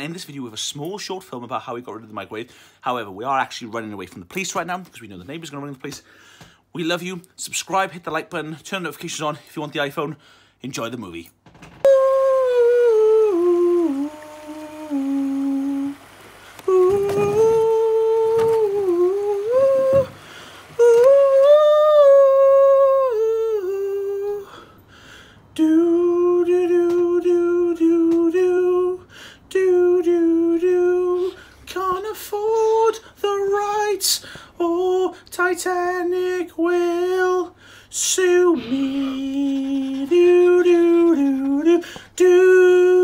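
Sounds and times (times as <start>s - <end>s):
person humming a slow tune: 11.8s - 24.6s, 38.4s - 41.6s.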